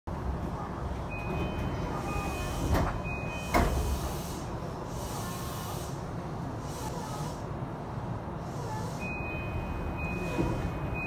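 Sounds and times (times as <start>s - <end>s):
low hum from stopped train: 0.1s - 11.0s
train door chime: 1.1s - 3.9s
doors sliding open: 1.1s - 5.8s, 9.2s - 11.0s.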